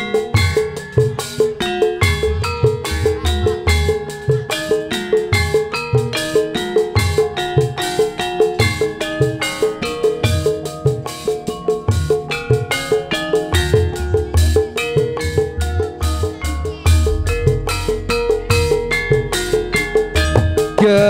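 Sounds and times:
gongs and metallophones struck: 0:00.0 - 0:21.0
deep drum strokes: 0:13.8 - 0:21.0.

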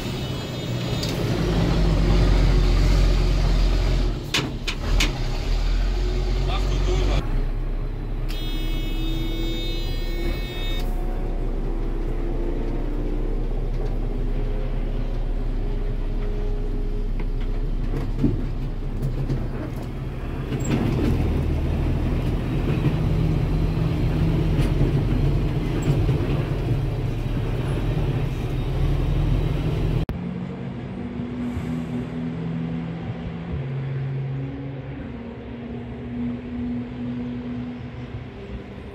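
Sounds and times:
truck engine revving: 0:01.0 - 0:07.4.

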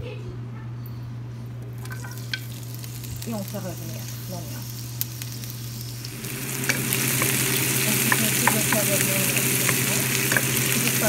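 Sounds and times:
steady low hum: 0:00.0 - 0:11.0
onion sizzling in hot oil: 0:01.7 - 0:11.0
spatula scraping and tapping pan: 0:06.6 - 0:10.9.

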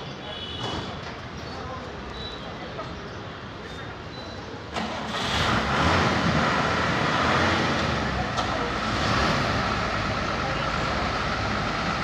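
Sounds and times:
heavy vehicle engine running: 0:04.7 - 0:12.0.

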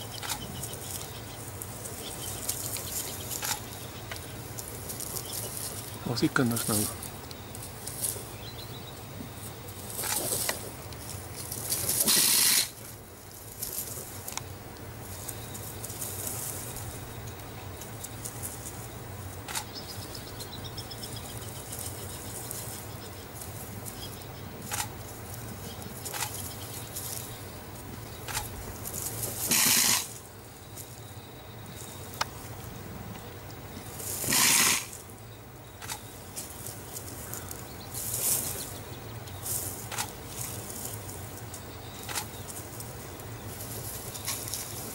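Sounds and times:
loud hissing rattles: 0:00.0 - 0:08.4, 0:09.0 - 0:17.0, 0:26.0 - 0:30.4, 0:33.9 - 0:35.2
steady low hum: 0:00.0 - 0:44.9
sharp ticks: 0:00.1 - 0:00.7, 0:19.4 - 0:19.8, 0:35.8 - 0:36.1, 0:39.2 - 0:40.2.

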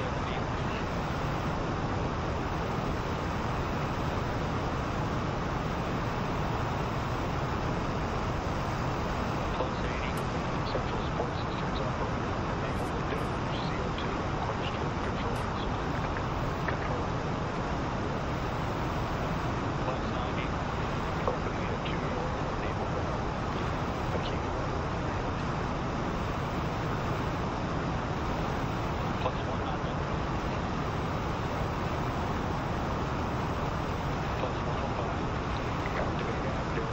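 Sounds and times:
rocket booster exhaust roar: 0:00.4 - 0:10.7.

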